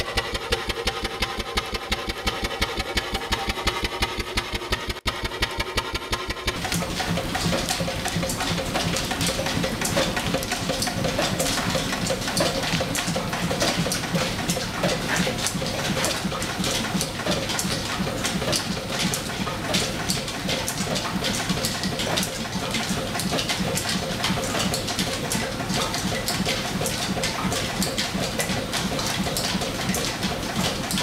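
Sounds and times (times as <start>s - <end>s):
steam engine driving line shaft: 0.0s - 31.0s
belts clicking and ticking: 6.3s - 31.0s.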